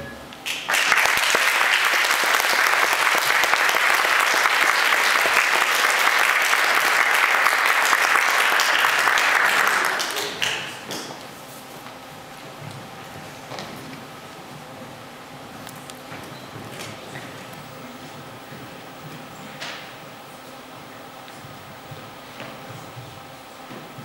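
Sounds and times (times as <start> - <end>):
audience clapping: 0.4 - 11.2.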